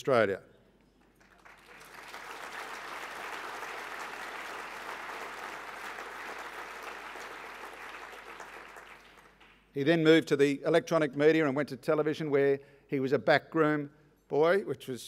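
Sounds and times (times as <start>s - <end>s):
audience applauding: 1.0s - 9.6s.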